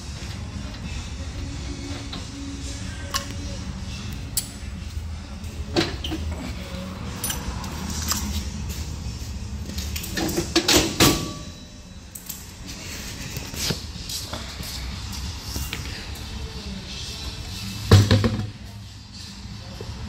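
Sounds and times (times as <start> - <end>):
metal lug nuts clinking: 3.1 - 3.4, 5.7 - 8.4.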